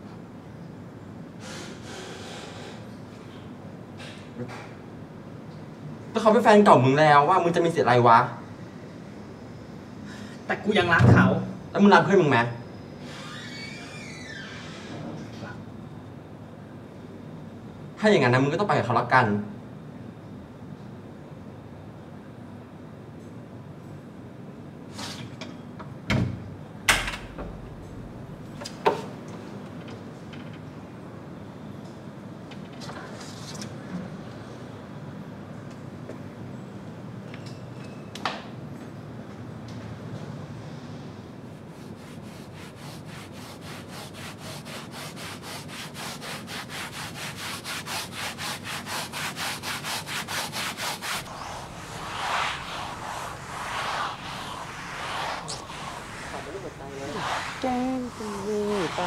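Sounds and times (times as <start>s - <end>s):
stiff brush scrubbing a floor: 41.7s - 55.8s.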